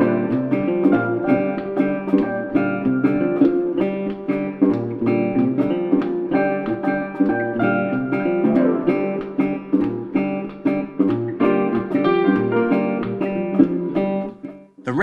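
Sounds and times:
acoustic guitar picking: 0:00.0 - 0:15.0.

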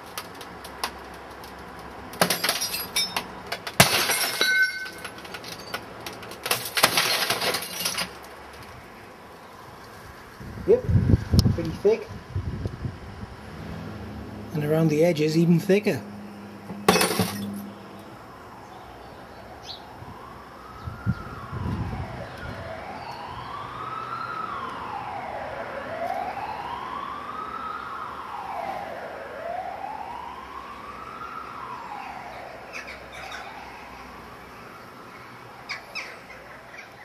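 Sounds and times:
emergency siren wailing: 0:13.3 - 0:37.0.

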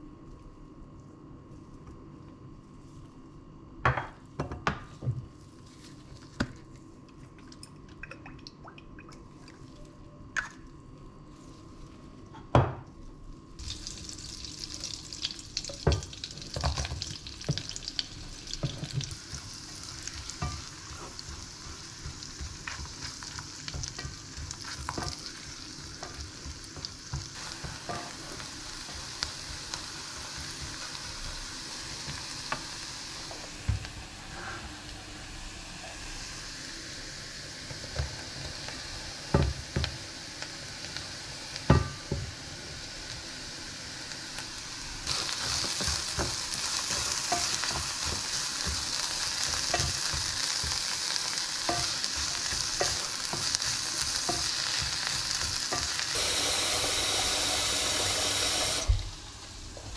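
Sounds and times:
leeks sizzling in butter: 0:13.6 - 0:59.6.

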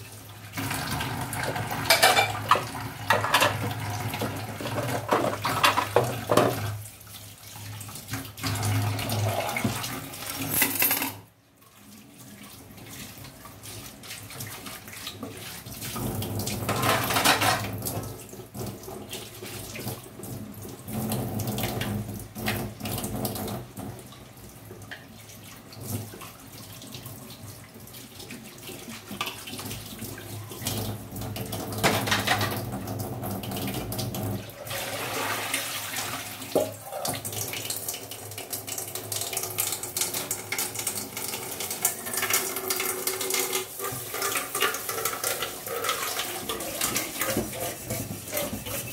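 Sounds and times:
tap running into sink: 0:00.6 - 0:06.8, 0:30.6 - 0:34.4, 0:36.5 - 0:37.8, 0:38.4 - 0:48.9
dishes and utensils clinking: 0:01.8 - 0:06.6, 0:10.4 - 0:11.3, 0:16.7 - 0:17.8, 0:31.8 - 0:32.6.

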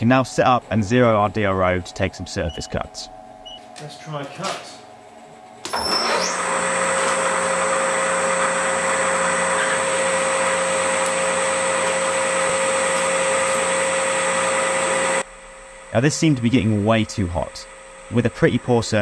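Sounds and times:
lathe machining steel: 0:05.7 - 0:19.0.

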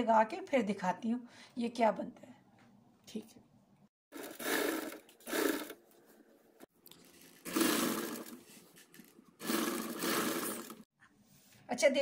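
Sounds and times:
sewing machine stitching: 0:04.1 - 0:05.8, 0:07.1 - 0:10.9.

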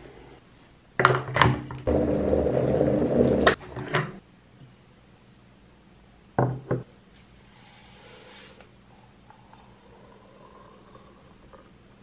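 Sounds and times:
electric kettle rumbling: 0:01.9 - 0:04.1.

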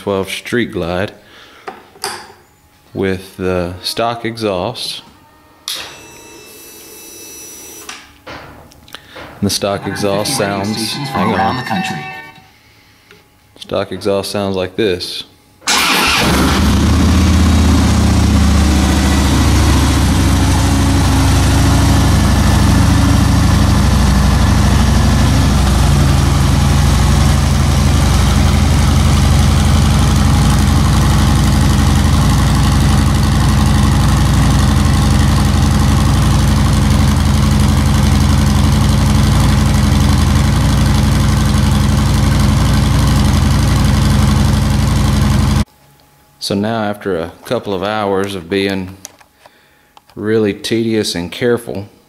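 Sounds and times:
motorcycle engine idling: 0:16.7 - 0:45.6.

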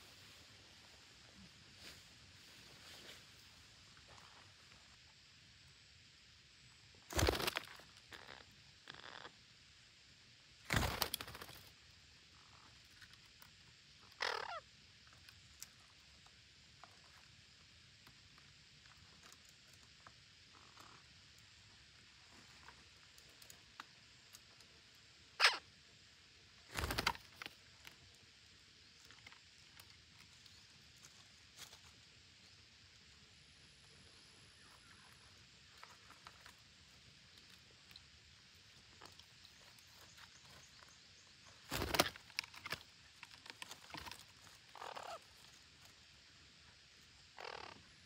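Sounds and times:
bird scuffling on stump: 0:07.1 - 0:07.7, 0:41.6 - 0:44.4
parakeet harsh calls: 0:14.2 - 0:14.6, 0:25.4 - 0:25.6, 0:44.8 - 0:45.2, 0:47.4 - 0:47.8.

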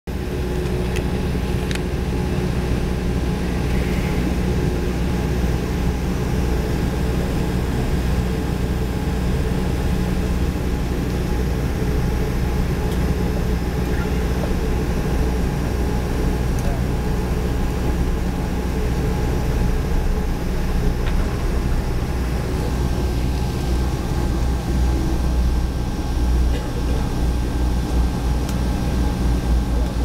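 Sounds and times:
jet engine drone and cabin hum: 0:00.1 - 0:30.0.

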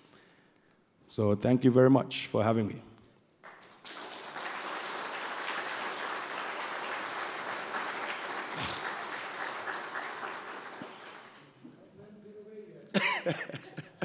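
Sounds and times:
audience applauding: 0:03.4 - 0:11.7.

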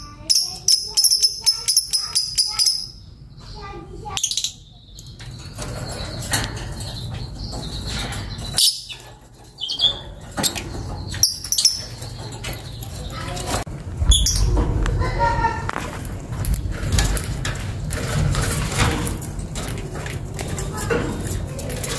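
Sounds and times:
lovebird chirping and chattering: 0:00.0 - 0:15.4
steady low rumble: 0:13.6 - 0:18.6.

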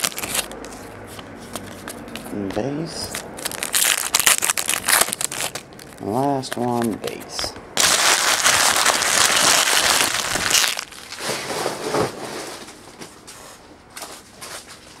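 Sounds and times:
foil wrappers crinkling: 0:00.0 - 0:00.8, 0:03.0 - 0:07.2, 0:07.8 - 0:11.7.

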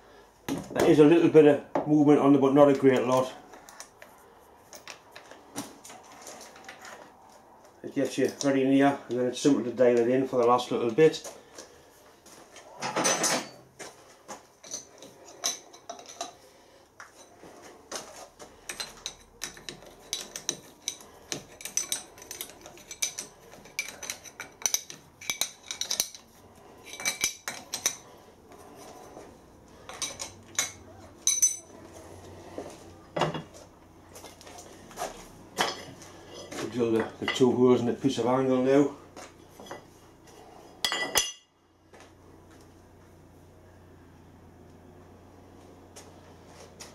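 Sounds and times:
metal clinks and knocks: 0:12.8 - 0:13.7, 0:14.6 - 0:16.4, 0:17.1 - 0:28.1, 0:29.8 - 0:31.8.

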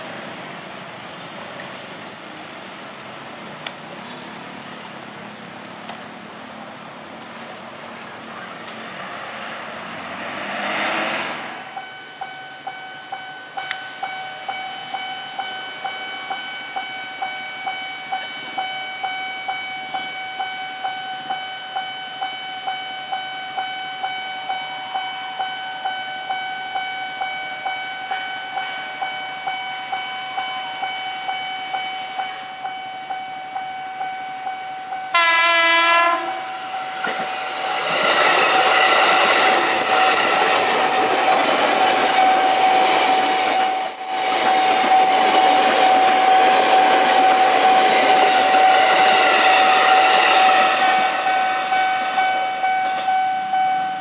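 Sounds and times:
road traffic passing: 0:00.0 - 0:12.6, 0:35.1 - 0:54.0
level-crossing warning bell: 0:11.6 - 0:54.0.

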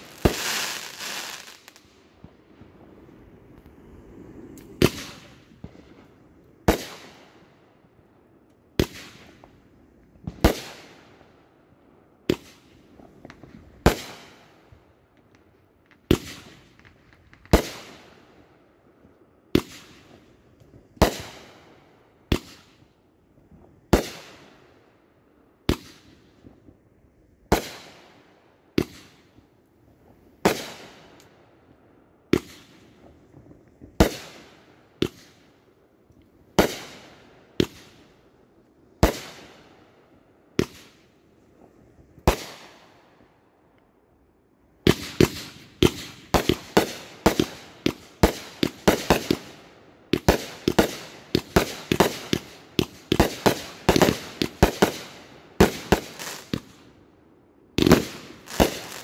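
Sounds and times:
fireworks bangs: 0:00.0 - 0:07.6, 0:32.3 - 0:35.4, 0:40.6 - 0:43.0, 0:44.8 - 0:56.8, 0:57.8 - 0:59.0.

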